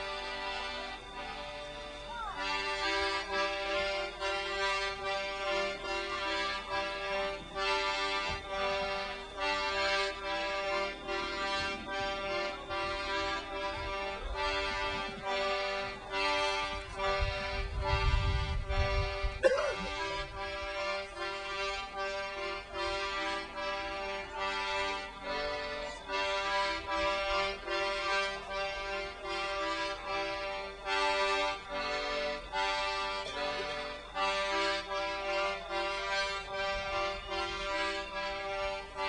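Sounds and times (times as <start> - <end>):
free-reed instrument chords: 0.0 - 39.0.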